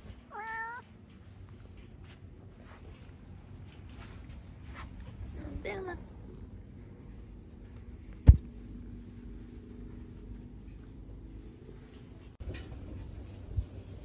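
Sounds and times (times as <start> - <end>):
crickets chirring: 0.0 - 14.0
sharp thump: 8.2 - 8.5.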